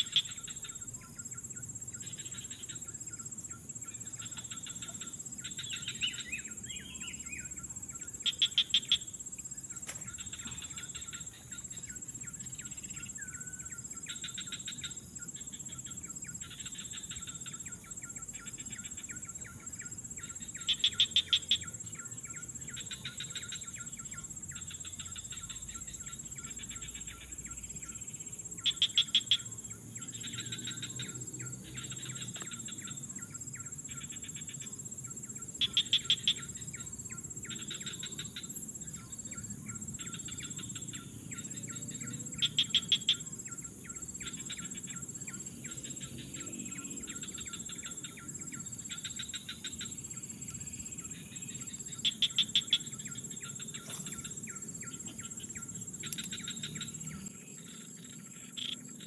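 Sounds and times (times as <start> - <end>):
insects buzzing: 0.0 - 59.0
birds chirping: 43.4 - 57.8.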